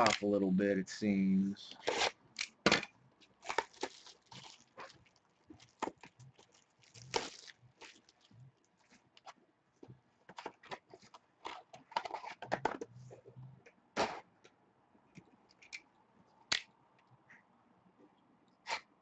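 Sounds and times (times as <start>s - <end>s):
card pack wrapper crinkling: 3.4s - 8.3s.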